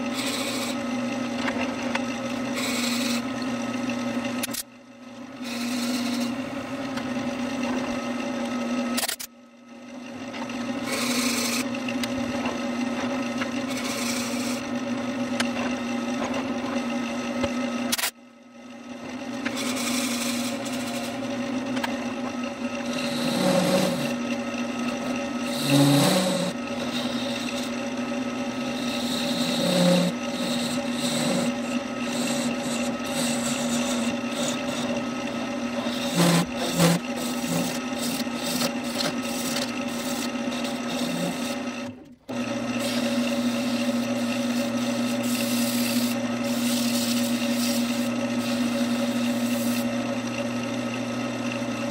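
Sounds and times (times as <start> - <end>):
sandpaper rubbing spinning wood: 0.0 - 0.8, 2.5 - 3.2, 5.4 - 6.4, 10.9 - 11.6, 13.7 - 14.6, 19.5 - 21.3, 22.8 - 24.2, 25.0 - 27.8, 28.5 - 41.7, 42.8 - 49.9
turning tool scraping wood: 0.0 - 0.9, 2.4 - 3.4, 5.4 - 6.4, 10.5 - 14.7, 19.4 - 50.0
lathe motor humming: 0.0 - 8.9, 10.0 - 18.0, 18.6 - 51.9.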